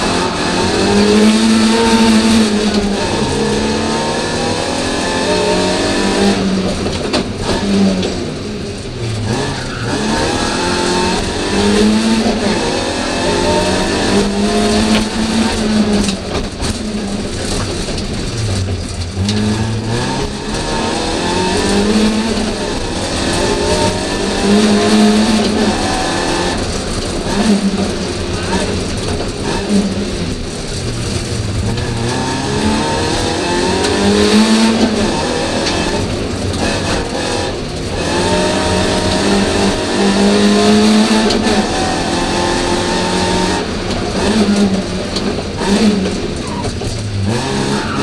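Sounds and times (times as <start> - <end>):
car engine revving and shifting gears: 0.0 - 48.0.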